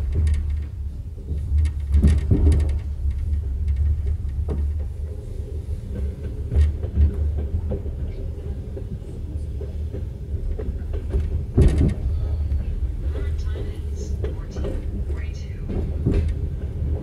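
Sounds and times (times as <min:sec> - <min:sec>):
wheels knocking over track: 0:00.0 - 0:05.3, 0:05.9 - 0:13.3
train low rumble: 0:00.0 - 0:17.0.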